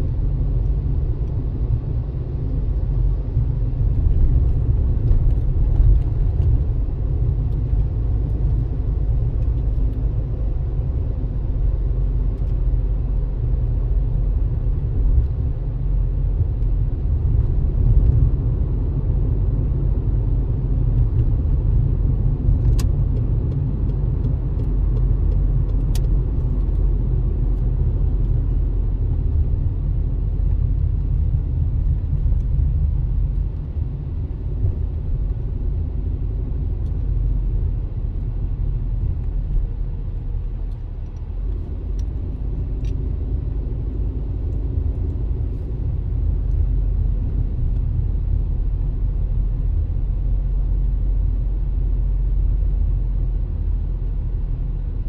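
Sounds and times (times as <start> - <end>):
car road and engine rumble: 0.0 - 55.0.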